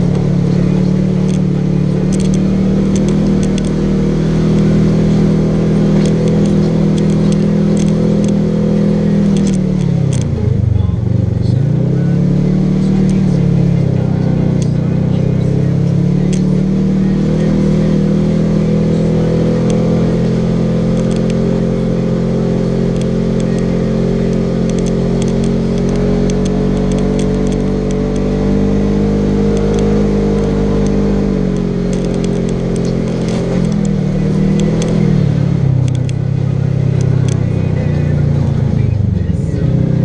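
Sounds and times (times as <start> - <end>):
off-road vehicle engine running: 0.0 - 40.0
light clicks: 2.1 - 3.8, 6.0 - 8.4, 9.2 - 10.3, 24.3 - 28.3.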